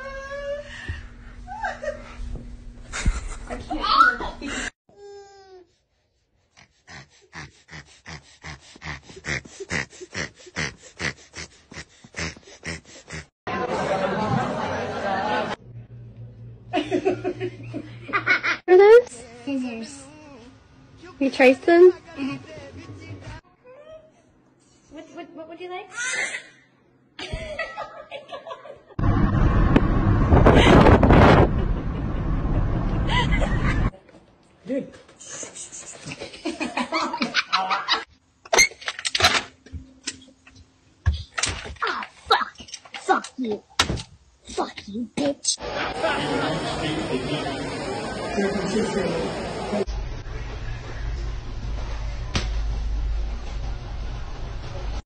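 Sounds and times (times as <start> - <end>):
child's voice laughing: 3.0 - 4.6
baby panting: 5.0 - 13.3.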